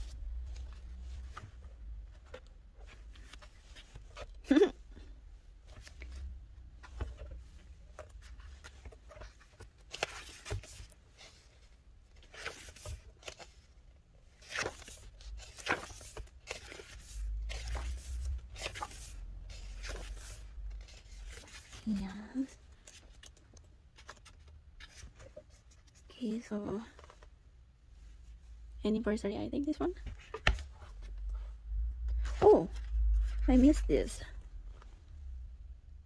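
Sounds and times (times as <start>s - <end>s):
paper and plastic rustling: 5.7s - 26.1s.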